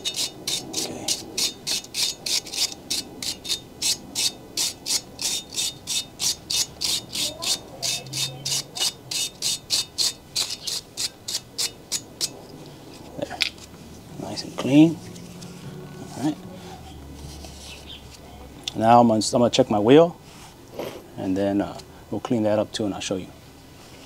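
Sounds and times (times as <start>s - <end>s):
wire brush scraping metal: 0.0s - 18.2s.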